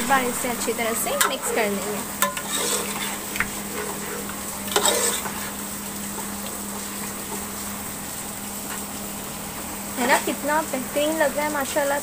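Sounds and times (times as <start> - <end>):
metal ladle scraping pot: 0.0 - 5.6
gravy sizzling: 0.0 - 12.0.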